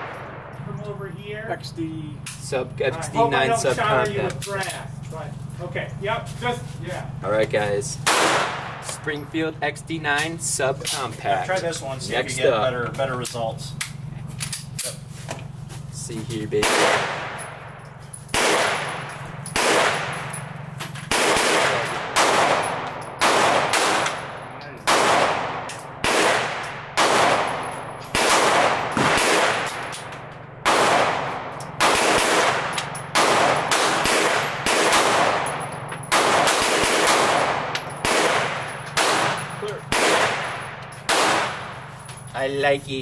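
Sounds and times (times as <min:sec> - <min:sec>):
pistol shots with echo: 0:00.0 - 0:00.6, 0:08.0 - 0:09.1, 0:16.6 - 0:42.0.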